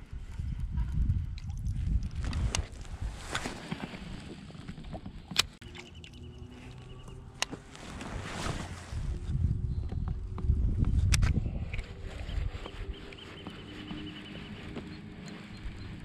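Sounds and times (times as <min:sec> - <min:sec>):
fishing rod handling rumble: 0:00.4 - 0:09.4.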